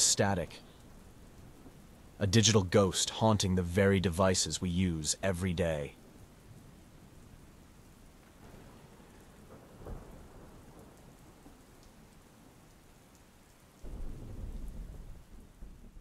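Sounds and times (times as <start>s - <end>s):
steady rain: 0.0s - 16.0s
thunder rumbling: 8.3s - 11.6s, 13.8s - 16.0s.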